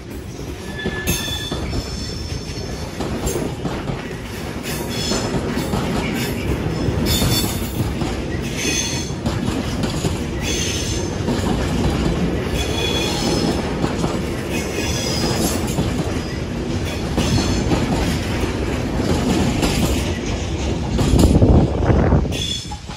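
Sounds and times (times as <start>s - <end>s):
train wagons rumbling and clattering: 0.0s - 22.9s
high wheel squeals: 0.6s - 2.7s.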